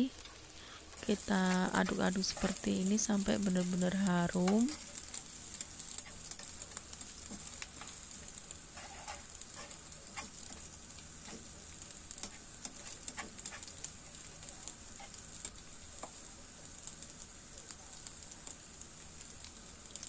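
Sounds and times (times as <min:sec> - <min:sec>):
food sizzling in hot oil: 0:00.0 - 0:20.0
metal spatula scraping a pan: 0:08.7 - 0:10.6.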